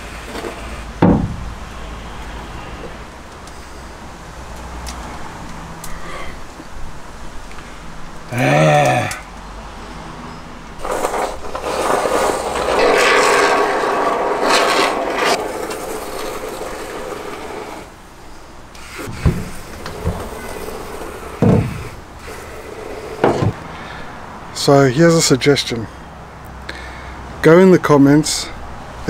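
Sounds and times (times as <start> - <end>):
short knocks: 1.0 - 1.6, 19.0 - 22.0.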